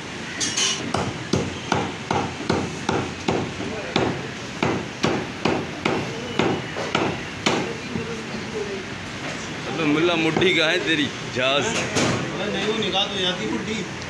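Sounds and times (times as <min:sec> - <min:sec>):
cleaver chopping on wooden block: 0:00.9 - 0:07.7.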